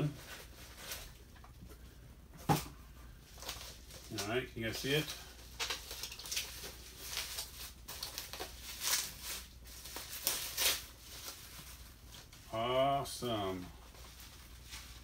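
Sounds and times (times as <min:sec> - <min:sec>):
bubble wrap crinkling: 0:00.0 - 0:01.8, 0:03.0 - 0:15.0.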